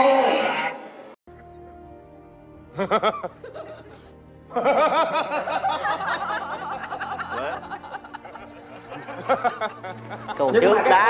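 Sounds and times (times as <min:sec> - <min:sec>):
background music: 0:00.0 - 0:11.0
hearty laughter: 0:02.7 - 0:11.0.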